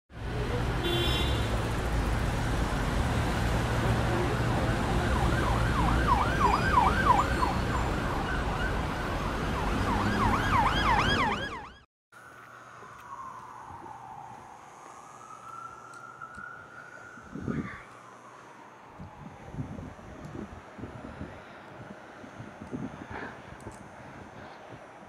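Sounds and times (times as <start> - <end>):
street traffic rumble: 0.1 - 25.0
siren yelping: 4.3 - 11.9.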